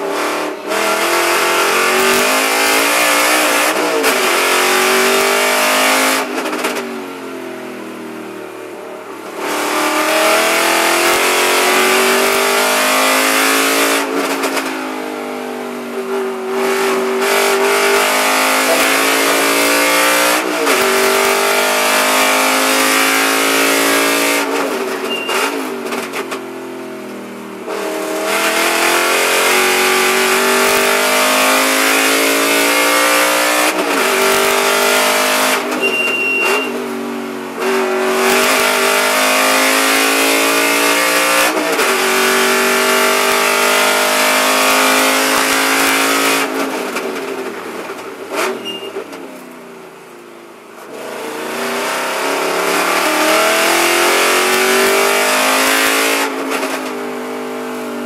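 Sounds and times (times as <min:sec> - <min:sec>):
race car engine accelerating: 0:00.0 - 0:08.0, 0:09.0 - 0:49.2, 0:50.6 - 0:58.0
throttle blips on downshifts: 0:17.5 - 0:25.8, 0:28.4 - 0:36.9.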